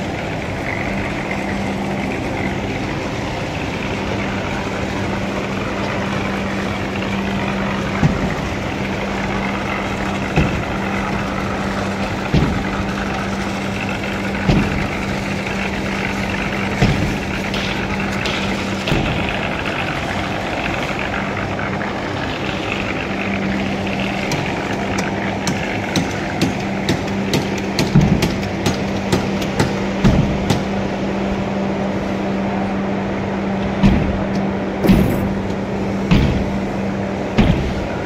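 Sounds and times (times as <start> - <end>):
motor humming: 0.0 - 38.0
construction knocks: 7.8 - 8.6, 9.4 - 15.7, 16.3 - 19.9, 24.0 - 30.7, 33.6 - 35.5, 36.1 - 36.7, 37.3 - 38.0.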